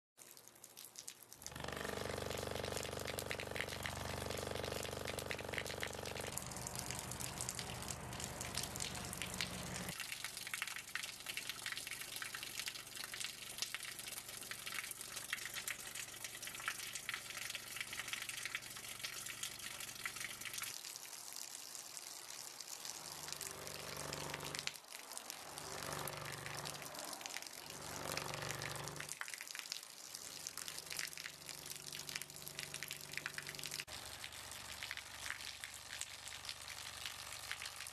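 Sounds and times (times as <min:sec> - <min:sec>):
water pouring and splashing: 0:00.2 - 0:37.9
low buzzing hum: 0:01.4 - 0:10.0, 0:27.7 - 0:29.1.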